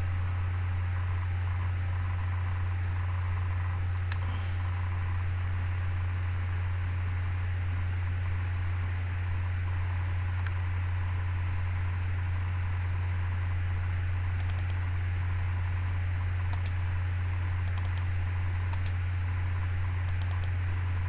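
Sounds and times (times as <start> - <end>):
low electrical hum: 0.0 - 21.0
computer mouse clicks: 4.1 - 4.4, 14.4 - 14.8, 16.5 - 16.8, 17.6 - 18.1, 18.7 - 19.0, 20.1 - 20.6.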